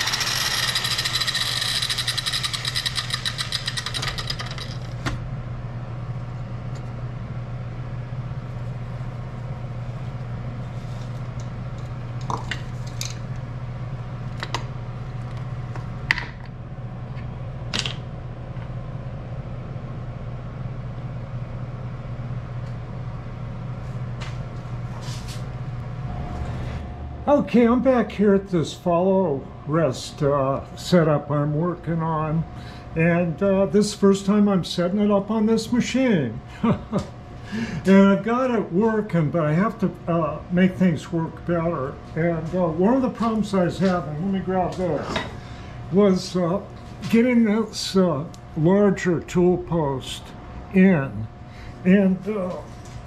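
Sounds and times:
power tool running: 0:00.0 - 0:05.0
steady low hum: 0:00.0 - 0:53.0.

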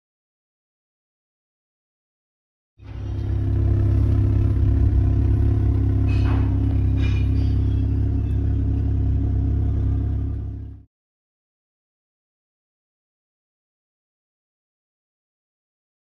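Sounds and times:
car engine rumbling: 0:02.8 - 0:10.9
short clattering: 0:05.6 - 0:08.4.

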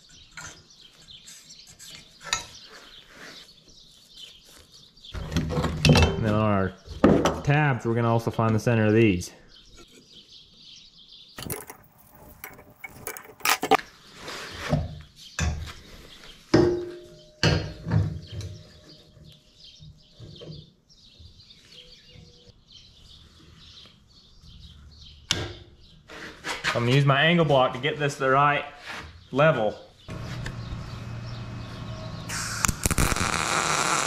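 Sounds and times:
metal clanks and scrapes: 0:11.4 - 0:13.8.

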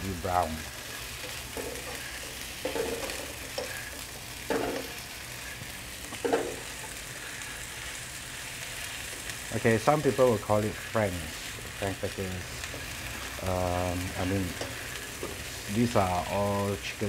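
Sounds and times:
sausages sizzling in oil: 0:00.0 - 0:17.0.

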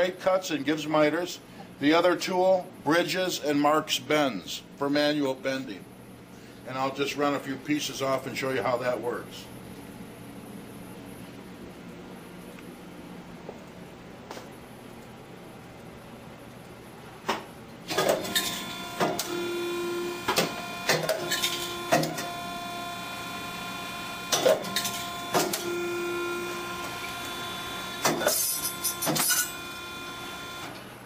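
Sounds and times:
feed motors humming: 0:17.9 - 0:31.0
machine whine: 0:17.9 - 0:31.0.

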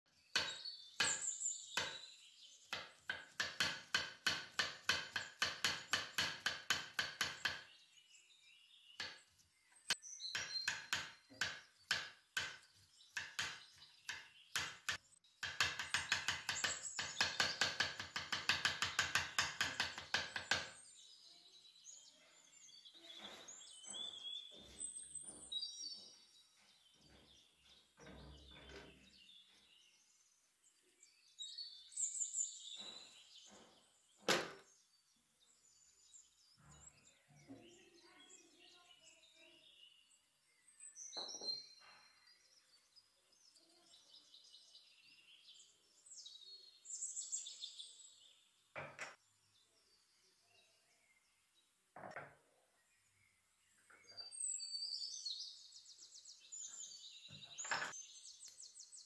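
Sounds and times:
knife chopping on stone countertop: 0:00.3 - 0:07.6, 0:09.9 - 0:20.7
quiet knocks: 0:32.8 - 0:34.7.

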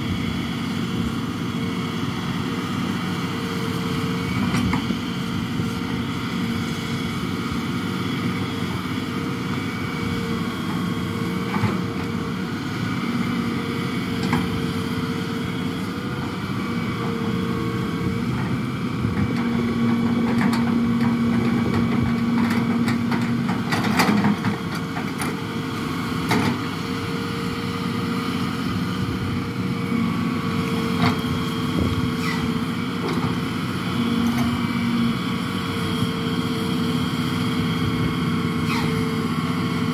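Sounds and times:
excavator engine and hydraulics: 0:00.0 - 0:39.9.

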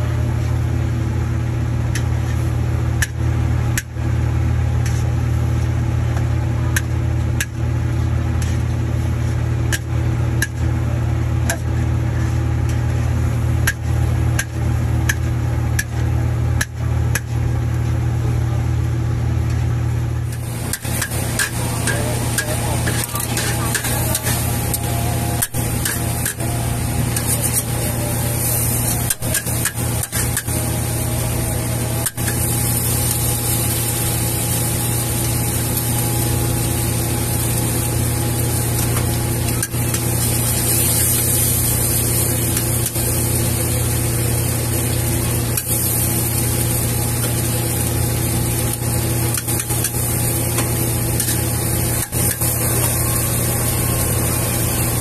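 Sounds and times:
gas burner rushing hum: 0:00.0 - 0:55.0
noodles sizzling: 0:20.1 - 0:55.0
metal spatula scraping wok: 0:20.3 - 0:33.9, 0:49.3 - 0:55.0.

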